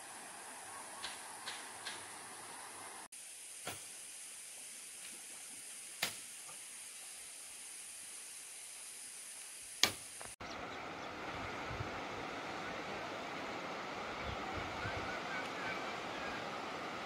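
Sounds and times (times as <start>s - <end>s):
high-pitched hiss: 0.0s - 10.7s.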